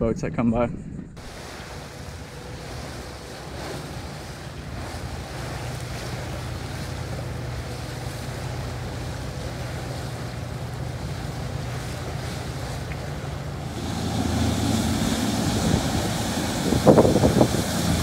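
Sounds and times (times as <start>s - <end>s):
boat engines droning: 1.2s - 18.0s
water wash: 1.2s - 18.0s
wind on microphone: 9.6s - 18.0s.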